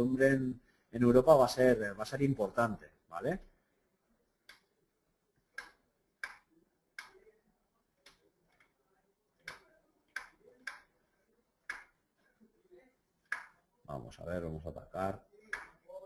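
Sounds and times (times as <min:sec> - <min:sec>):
computer mouse clicks: 0:09.4 - 0:10.9.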